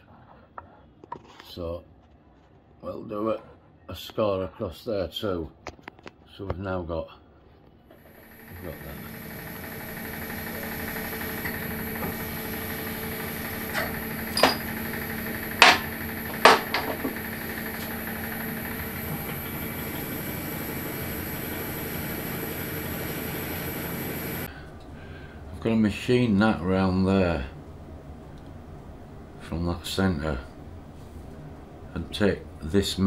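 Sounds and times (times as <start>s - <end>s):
drill boring into metal: 8.0s - 24.5s
milling machine spindle whine: 8.0s - 24.5s
sharp clicks and knocks: 15.5s - 17.2s.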